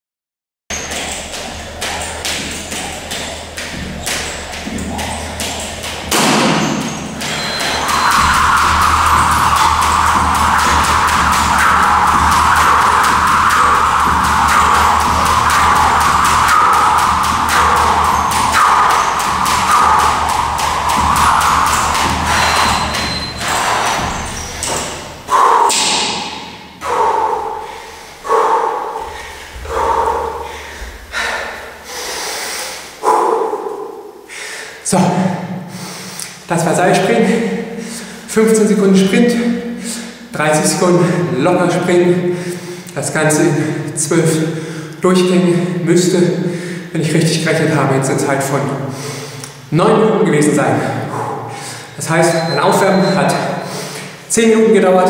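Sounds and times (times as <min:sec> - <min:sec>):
skipping rope slapping floor: 0:00.7 - 0:31.6
steady noise: 0:00.7 - 0:45.0
man panting: 0:25.3 - 0:25.9, 0:26.8 - 0:34.8, 0:37.7 - 0:38.3, 0:42.3 - 0:42.9, 0:43.6 - 0:45.0, 0:46.4 - 0:46.9, 0:50.8 - 0:52.0.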